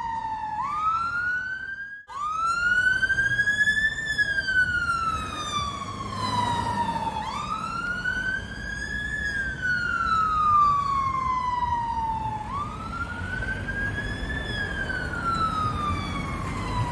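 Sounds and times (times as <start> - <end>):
fire truck wail siren: 0.0 - 16.9
traffic rumble: 0.0 - 16.9.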